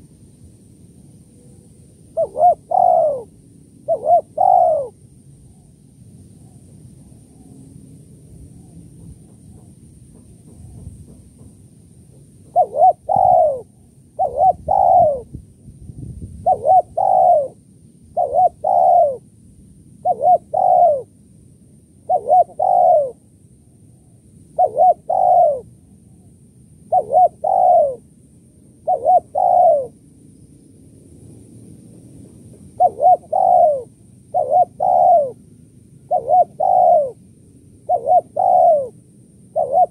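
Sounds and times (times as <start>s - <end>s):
dove cooing: 1.3s - 5.7s, 12.4s - 15.4s, 16.4s - 19.3s, 20.0s - 21.2s, 22.0s - 23.3s, 24.0s - 26.3s, 26.9s - 28.1s, 28.8s - 30.0s, 32.7s - 35.4s, 36.0s - 37.2s, 37.8s - 39.9s.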